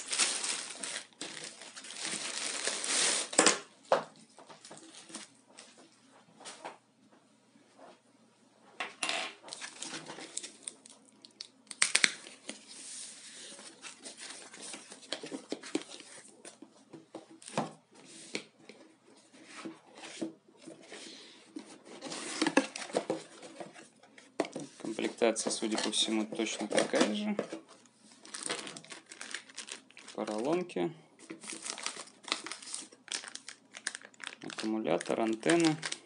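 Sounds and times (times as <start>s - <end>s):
foam sheet rustling: 0.0s - 3.3s
packing tape tearing: 11.7s - 12.3s.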